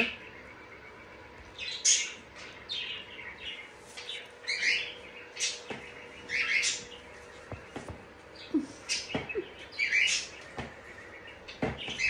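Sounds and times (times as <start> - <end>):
cockatoo chirping and squeaking: 3.9 - 7.0, 7.8 - 10.6.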